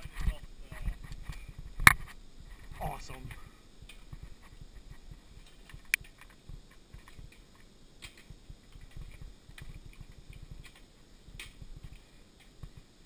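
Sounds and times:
bike clicks and rattles: 3.4 - 13.0.

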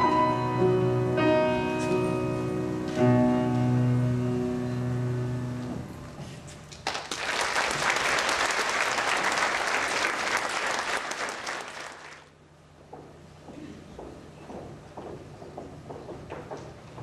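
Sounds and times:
audience applauding: 6.8 - 12.3.

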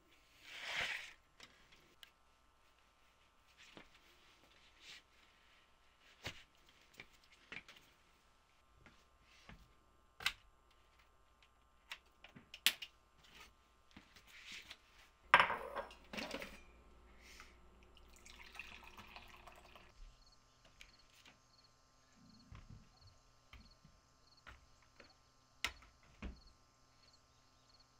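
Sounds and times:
liquid pouring hiss: 17.8 - 19.9.

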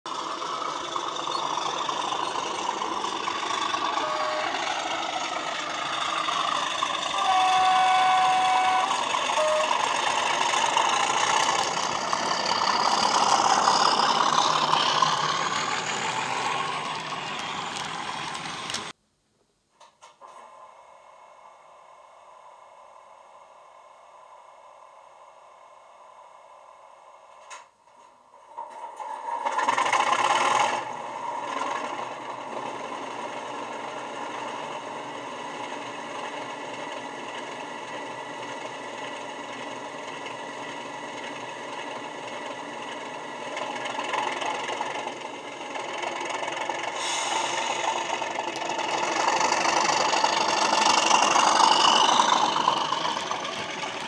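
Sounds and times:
diesel locomotive engine through speaker: 0.1 - 19.0, 20.3 - 54.0
locomotive horn notes: 3.8 - 5.1, 7.0 - 10.3.

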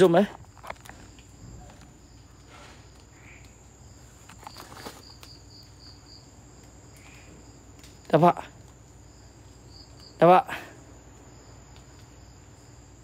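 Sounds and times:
cricket chirping: 0.0 - 13.0
faint rustles: 0.2 - 6.0.

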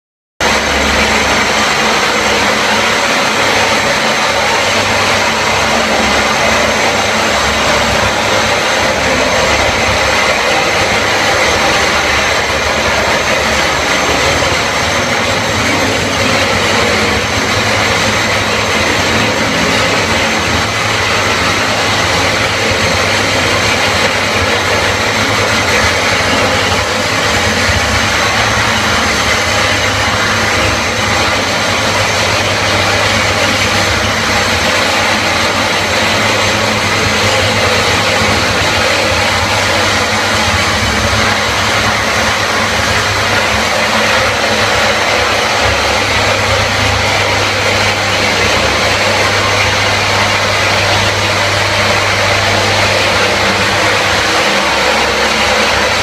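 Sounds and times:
dust extractor: 0.4 - 56.0
floor grinding machine: 0.4 - 56.0.

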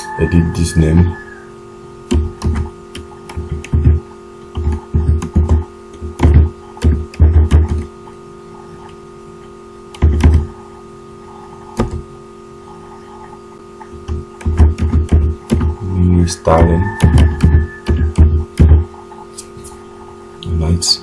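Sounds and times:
steady electrical hum: 0.0 - 21.0
computer keyboard typing: 2.1 - 7.9, 9.9 - 10.5, 14.0 - 15.8.

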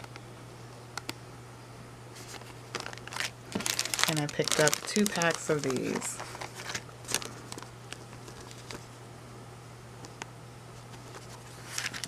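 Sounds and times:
steady low hum: 0.0 - 12.0
plastic packets crinkling: 2.2 - 8.9, 11.1 - 12.0.

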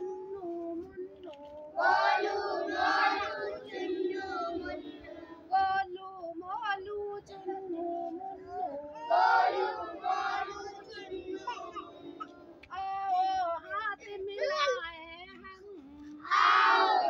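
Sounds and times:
woman singing: 0.0 - 2.0, 2.8 - 16.3
children singing in unison: 0.0 - 5.9, 7.1 - 13.4, 16.2 - 17.0.

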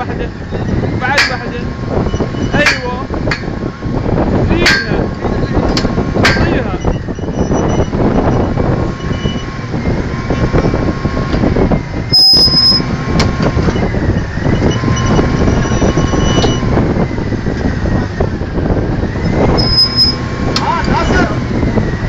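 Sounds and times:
drilling rig machinery running: 0.0 - 22.0
high squeal: 0.2 - 2.8, 6.4 - 10.9, 11.6 - 12.9, 13.6 - 16.8, 19.2 - 20.3.

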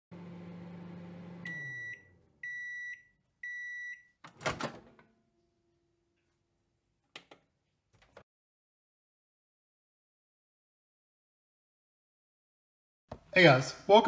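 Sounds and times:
microwave oven humming: 0.1 - 4.0
microwave beeps: 0.4 - 4.2.

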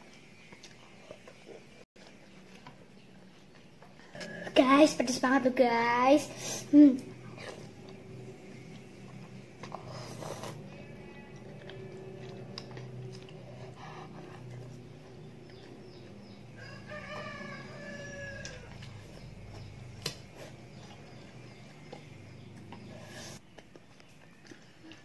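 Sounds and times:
steady low hum: 6.2 - 23.5
rooster crowing: 16.6 - 19.0.

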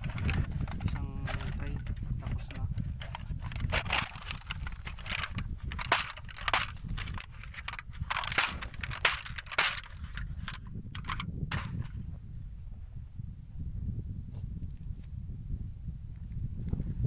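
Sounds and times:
plastic tray crackling: 0.0 - 11.8.

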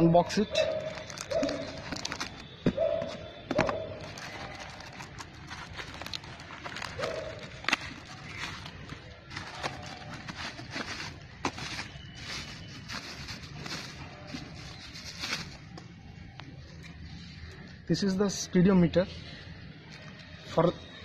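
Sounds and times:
paper and tape crackling: 0.5 - 2.6, 3.6 - 17.6.

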